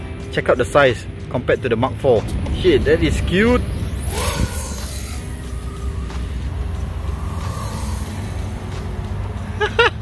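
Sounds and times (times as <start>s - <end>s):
background music: 0.0s - 10.0s
low rumble: 1.9s - 9.5s.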